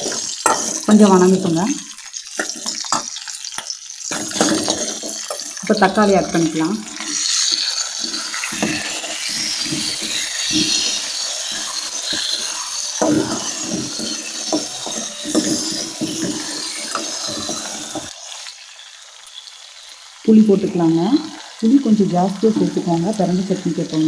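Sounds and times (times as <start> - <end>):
steel spoon scraping a pan: 0.0 - 18.6
tomatoes sizzling in hot oil: 0.0 - 24.0.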